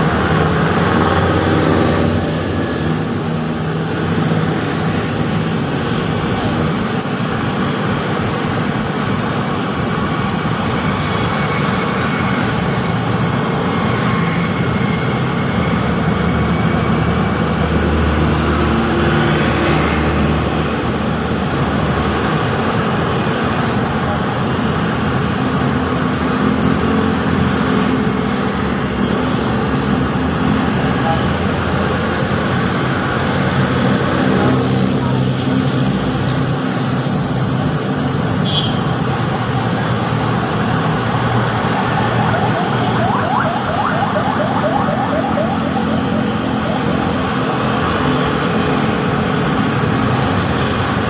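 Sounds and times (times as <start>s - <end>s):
road traffic passing: 0.0s - 51.0s
deeper engine sound: 40.2s - 50.6s.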